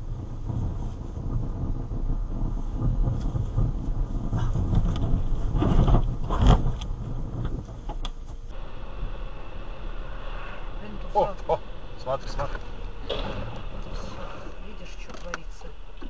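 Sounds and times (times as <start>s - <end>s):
car road and engine rumble: 0.0s - 16.0s
loud thump: 12.3s - 15.4s.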